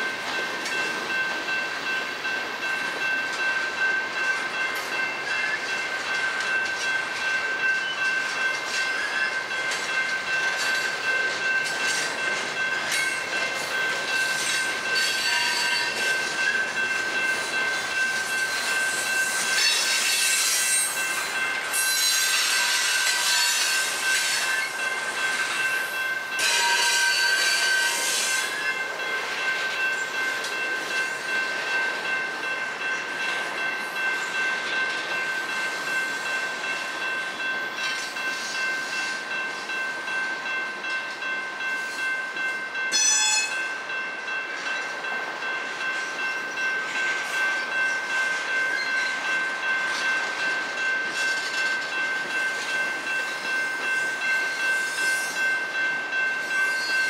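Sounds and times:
freight train rolling on jointed track: 0.0 - 57.0
high-pitched wheel squeal: 21.8 - 23.8.

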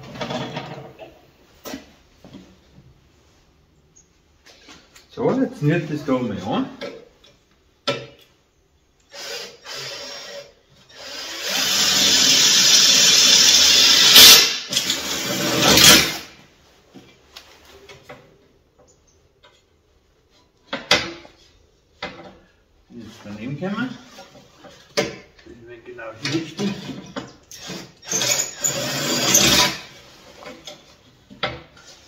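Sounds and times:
cordless drill drilling into metal: 9.1 - 16.3, 27.5 - 29.9.

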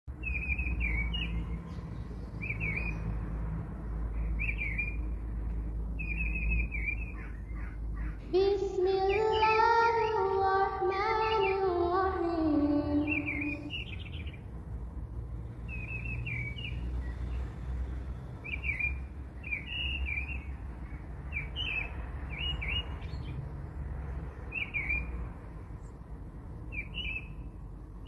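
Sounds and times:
bird chirps: 0.1 - 3.2, 4.1 - 5.2, 6.0 - 14.4, 15.6 - 17.5, 18.4 - 23.4, 24.5 - 25.2, 26.6 - 27.5.

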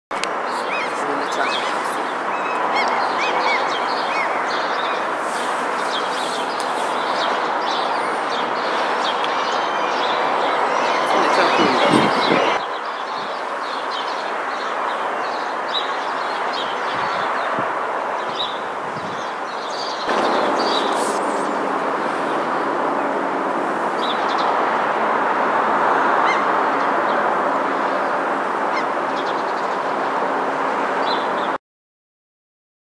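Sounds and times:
steady rushing noise: 0.1 - 31.4
seagulls calling: 0.2 - 12.6, 18.4 - 24.7, 25.8 - 29.9.

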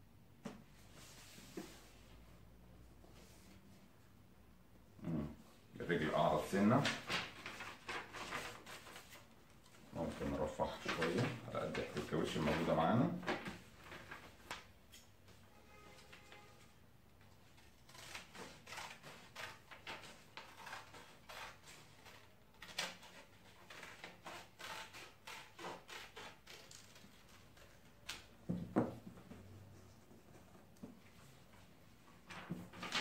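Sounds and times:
paper rustling: 6.2 - 15.1, 17.3 - 28.3, 29.3 - 33.0
scissors snipping paper: 17.6 - 27.3.

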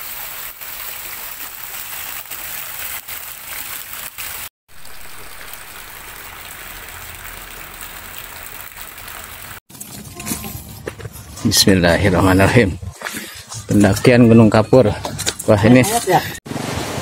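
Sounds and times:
heavy rain: 0.0 - 9.6
rainwater pouring down: 0.0 - 9.8.

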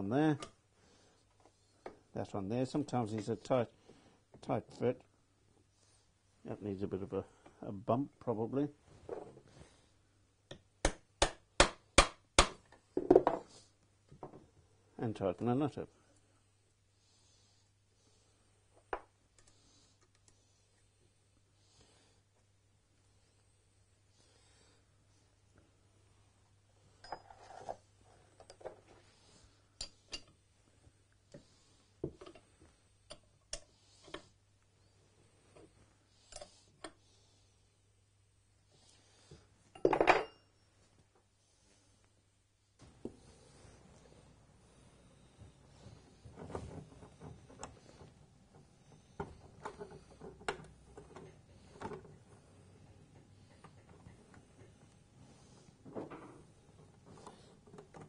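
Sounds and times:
tools on wooden workbench: 9.0 - 9.6, 10.5 - 14.5, 26.9 - 30.5, 31.3 - 34.4, 35.5 - 37.0, 39.3 - 40.6, 42.8 - 58.0.

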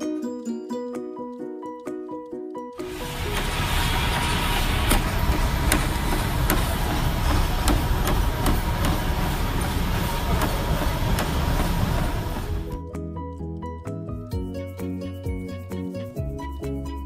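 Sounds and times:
feet thudding on treadmill: 2.8 - 12.8
treadmill belt and motor: 2.8 - 12.8.

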